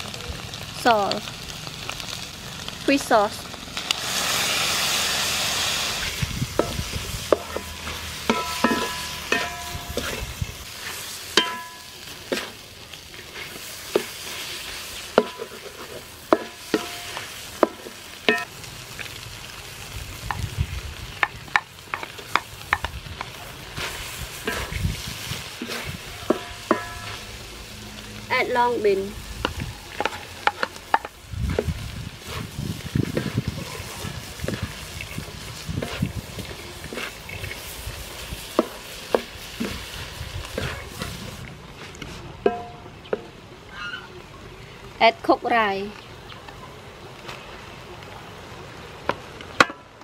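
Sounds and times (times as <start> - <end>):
food sizzling in a wok: 0.0 - 46.2, 46.8 - 50.0
sauce hissing on hot metal: 0.9 - 21.2, 23.4 - 41.5
spatula scraping and knocking wok: 3.8 - 27.7, 28.4 - 43.4.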